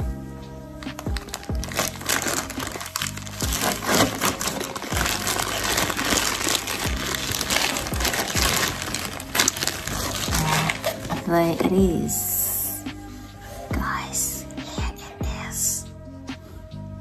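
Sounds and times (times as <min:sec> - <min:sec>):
background music with low beat: 0:00.0 - 0:17.0
packing wrap crinkling: 0:00.8 - 0:11.8.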